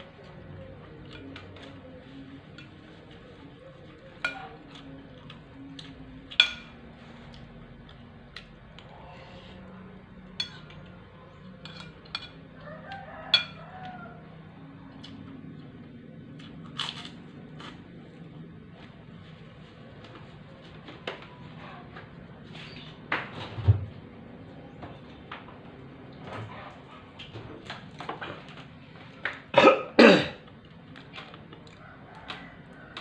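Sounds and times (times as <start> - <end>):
low steady hum: 0.0 - 33.0
cutlery clinking on a plate: 6.3 - 6.8, 10.4 - 10.9, 11.6 - 12.4, 13.3 - 13.7.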